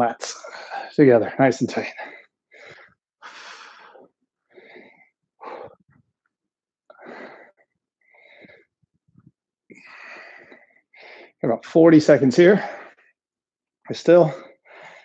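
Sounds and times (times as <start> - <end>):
man breathing hard: 0.3 - 1.0, 1.9 - 6.0, 6.9 - 8.8, 9.7 - 11.4, 14.3 - 15.0.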